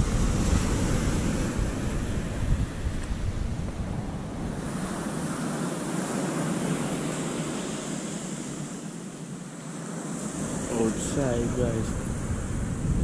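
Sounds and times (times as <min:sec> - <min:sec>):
wind buffeting microphone: 0:00.0 - 0:07.6, 0:10.2 - 0:13.0
wind: 0:00.0 - 0:13.0.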